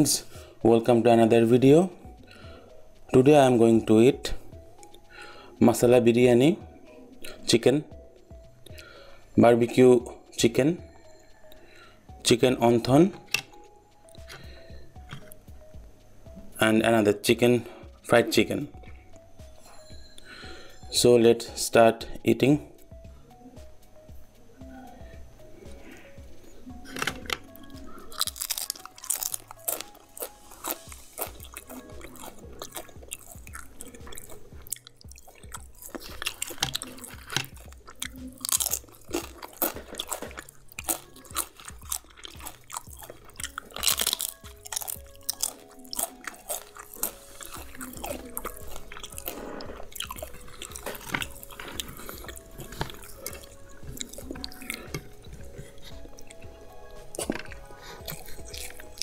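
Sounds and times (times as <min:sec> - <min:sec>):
crunching and chewing food: 0:08.6 - 0:15.4, 0:25.6 - 0:59.0.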